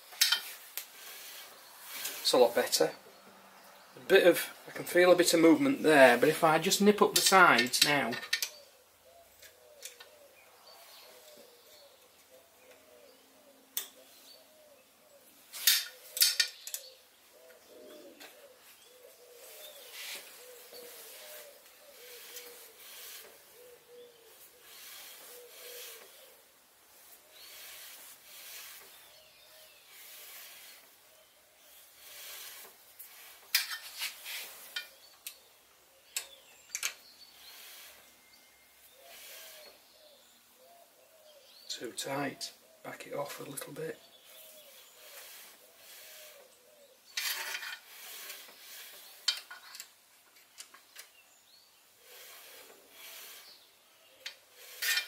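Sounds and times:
metal carriage sliding on metal: 31.7s - 34.9s, 39.1s - 39.8s, 47.2s - 49.8s, 52.0s - 53.6s, 54.4s - 55.0s.

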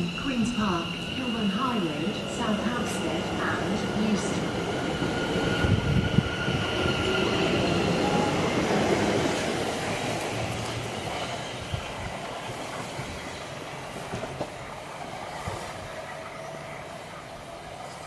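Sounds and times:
train rumbling on track: 0.0s - 18.0s.

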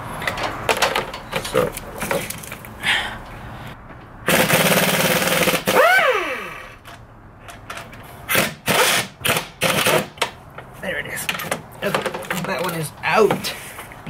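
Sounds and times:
impact wrench hammering: 4.3s - 6.0s, 8.3s - 10.4s.

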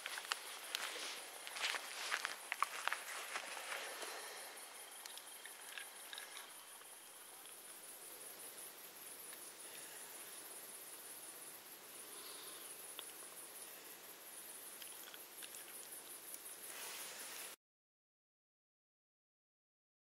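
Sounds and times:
crickets chirping: 0.0s - 17.6s
faint steady hiss: 0.0s - 17.6s
small ticks: 4.9s - 7.8s, 12.1s - 13.8s, 14.5s - 16.6s.

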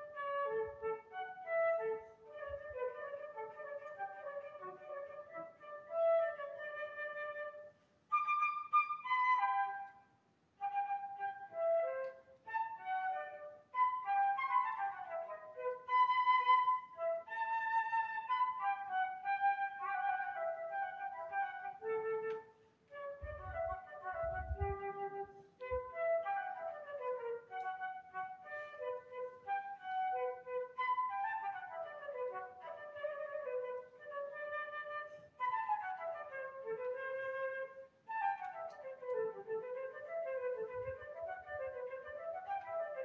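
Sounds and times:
solo flute melody: 0.0s - 43.0s.

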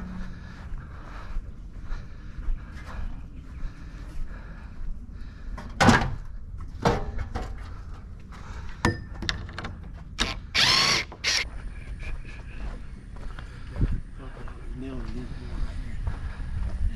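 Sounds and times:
sharp knocks and clanks: 8.8s - 10.1s
impact driver running: 10.2s - 11.5s.

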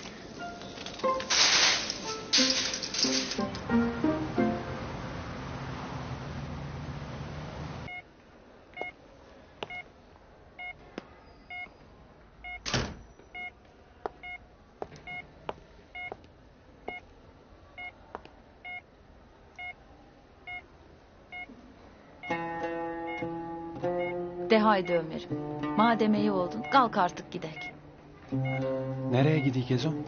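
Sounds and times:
street noise: 0.0s - 30.0s
guitar music: 0.4s - 5.2s, 22.3s - 30.0s
patient monitor beeping: 22.2s - 30.0s.

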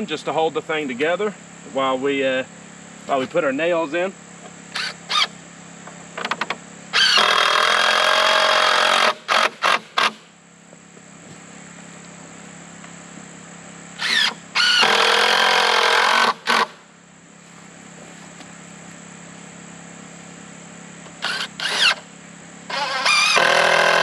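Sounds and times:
cordless drill driving screws: 4.7s - 5.3s, 7.0s - 10.2s, 14.0s - 16.7s, 21.2s - 22.0s, 22.7s - 24.0s.

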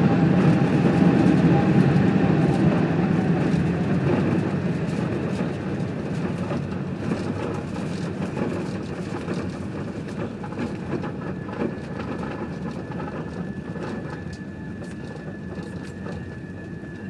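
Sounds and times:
airliner cabin rumble: 0.0s - 17.0s
thin steady whine: 11.2s - 17.0s.

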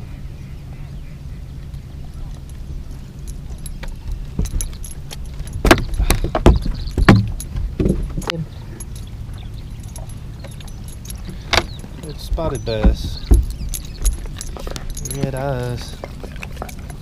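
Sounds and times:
steady low hum: 0.0s - 17.0s
clicks rattles and knocks: 2.4s - 17.0s.

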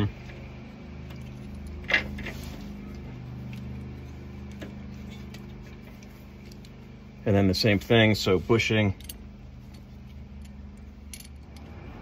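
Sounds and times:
metal parts clicking: 9.0s - 11.7s.

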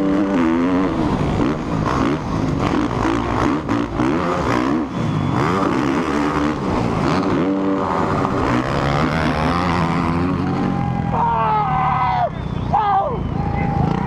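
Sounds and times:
motocross bike at full throttle: 0.0s - 14.0s.

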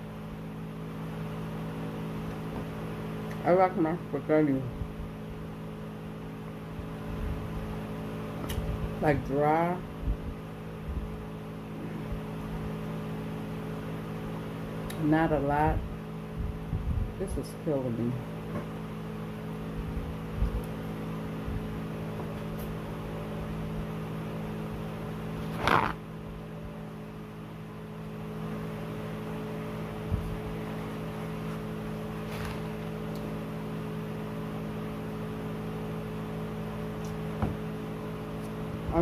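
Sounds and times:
appliance hum: 0.0s - 39.0s
mouth or handling noise: 25.4s - 26.0s.

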